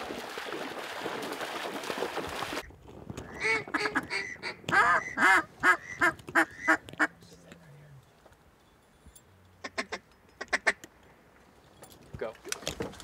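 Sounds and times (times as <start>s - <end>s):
duck call whistle: 3.4s - 6.8s.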